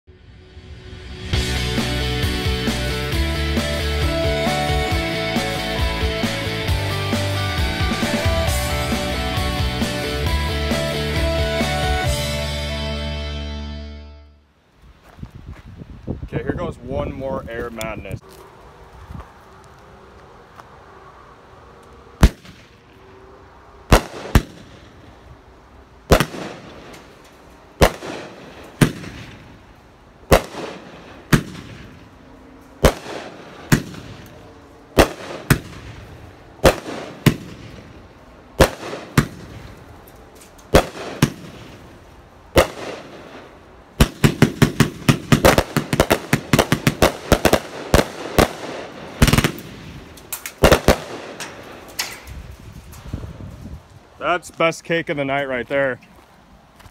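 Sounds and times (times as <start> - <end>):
firework bangs: 22.2 - 23.0, 23.9 - 25.2, 26.0 - 27.2, 27.8 - 32.1, 32.8 - 40.0, 40.7 - 53.0.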